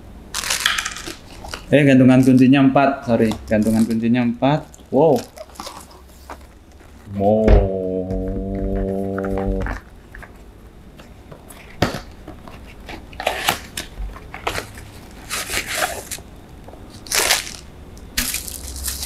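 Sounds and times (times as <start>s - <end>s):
cardboard and plastic rustling: 0.4s - 7.1s, 9.3s - 16.2s.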